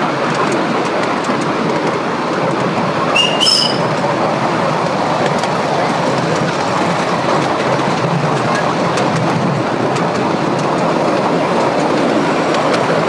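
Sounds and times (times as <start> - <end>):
small train wheels rumbling on rails: 0.0 - 13.0
high wheel squeal: 3.1 - 4.0.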